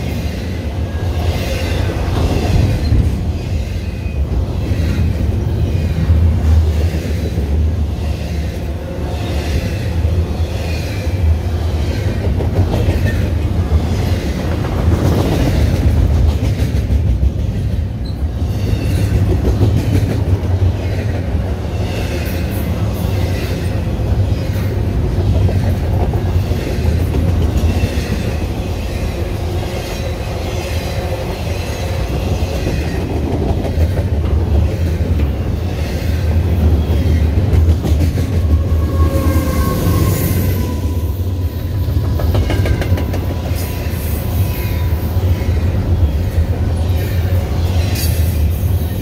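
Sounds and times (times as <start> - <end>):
train wheels rumbling on rails: 0.0 - 49.0
wheels clacking over rail joints: 41.6 - 44.0.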